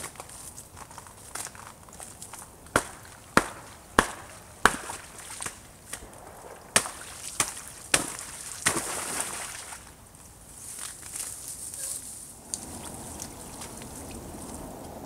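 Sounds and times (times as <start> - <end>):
pond ice cracking: 0.0 - 11.6.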